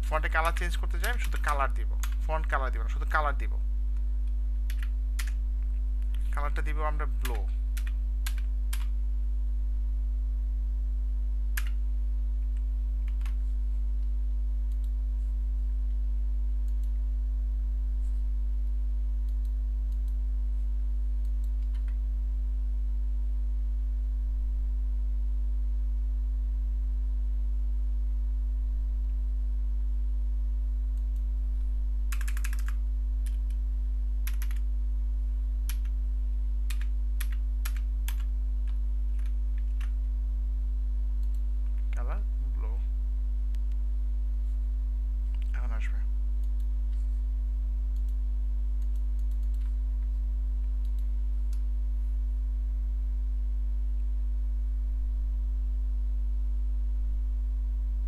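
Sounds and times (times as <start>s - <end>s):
low electrical hum: 0.0s - 58.0s
keyboard keystrokes: 32.1s - 33.4s.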